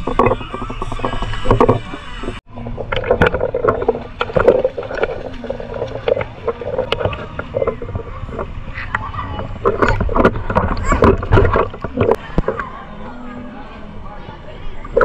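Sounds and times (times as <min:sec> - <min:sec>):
small water splashes: 0:00.0 - 0:13.0
pool water lapping and sloshing: 0:00.0 - 0:15.0.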